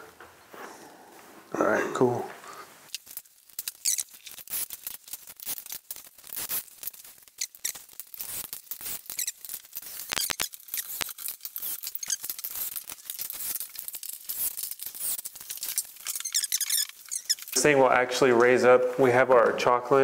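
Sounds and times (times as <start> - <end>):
wooden frame clicking and scraping: 2.9 - 17.6
short squeaks: 3.6 - 4.7, 7.3 - 17.6.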